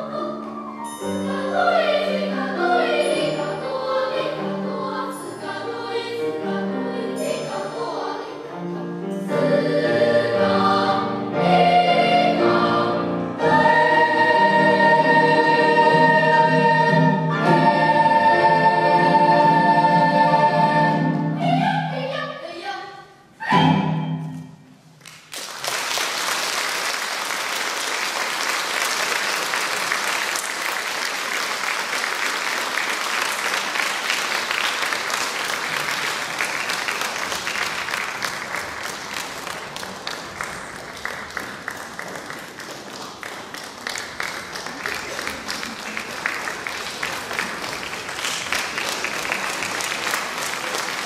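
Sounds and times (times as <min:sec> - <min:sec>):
children's choir singing: 0:00.0 - 0:24.3
audience applauding: 0:25.0 - 0:51.0.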